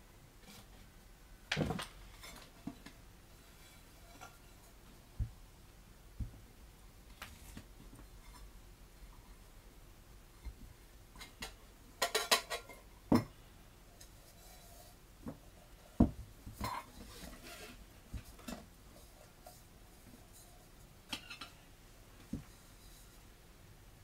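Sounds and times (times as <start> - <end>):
metal cookware clinking and knocking: 12.0 - 12.8.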